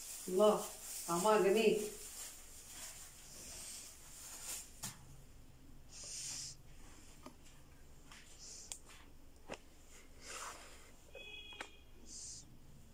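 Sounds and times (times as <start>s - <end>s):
person breathing faintly: 3.2s - 4.1s, 5.9s - 7.3s, 8.1s - 9.1s, 9.8s - 11.1s, 12.0s - 12.6s.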